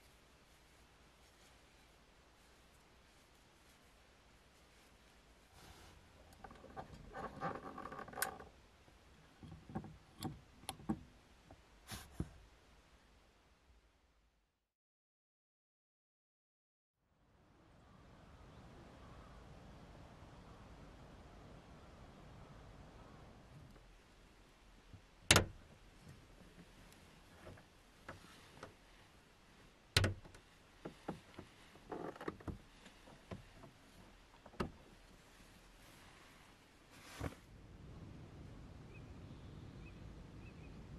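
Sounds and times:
fabric rustling: 0:00.0 - 0:07.5, 0:25.8 - 0:37.5.

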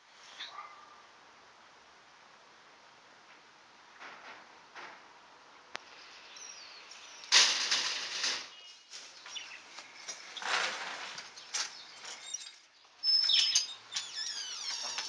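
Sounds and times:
screen door rattling: 0:07.3 - 0:08.6, 0:10.2 - 0:12.6, 0:13.2 - 0:15.0.

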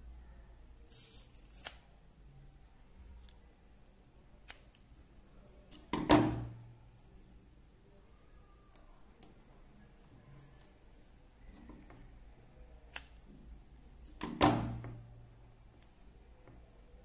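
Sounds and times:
scissors snipping foam tape: 0:00.9 - 0:01.8.

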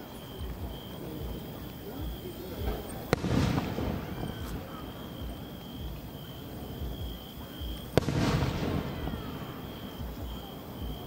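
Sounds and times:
firework shell bursting boom: 0:08.0 - 0:09.6.

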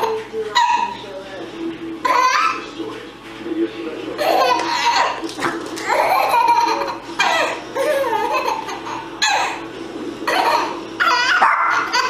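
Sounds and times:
baby laughing: 0:00.0 - 0:01.0, 0:02.0 - 0:02.7, 0:04.2 - 0:12.0.

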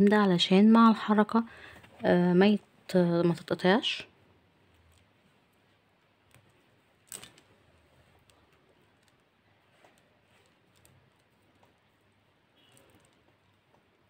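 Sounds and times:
beads and chain clicking: 0:06.3 - 0:07.5, 0:12.6 - 0:13.6.

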